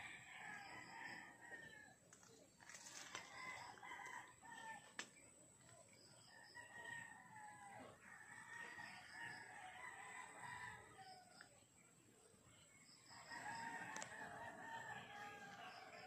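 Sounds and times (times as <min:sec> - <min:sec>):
roosters crowing: 0:00.0 - 0:02.0, 0:02.7 - 0:04.9, 0:06.4 - 0:11.4, 0:13.1 - 0:16.0.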